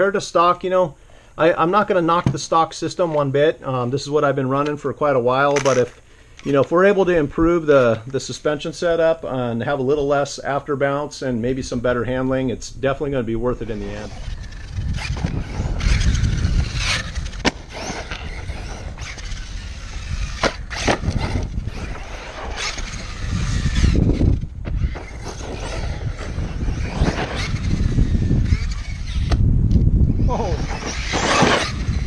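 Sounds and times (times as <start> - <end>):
wind on microphone: 12.7 - 32.0
electric motor whine: 13.7 - 32.0
tyres scrabbling on dirt: 13.8 - 29.4, 30.6 - 32.0.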